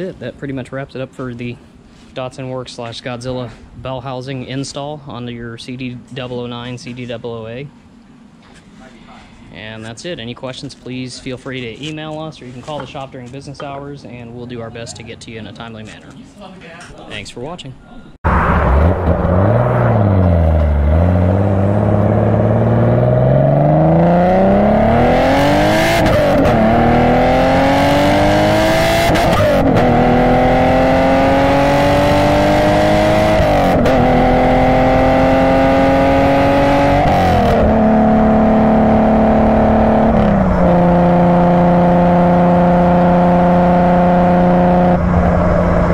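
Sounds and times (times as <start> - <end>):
car engine accelerating through gears: 18.3 - 45.9.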